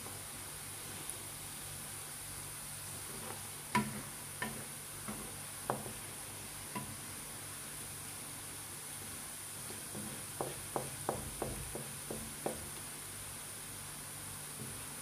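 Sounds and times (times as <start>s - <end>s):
wooden spoon knocking against pan: 3.8s - 6.0s, 9.9s - 12.7s.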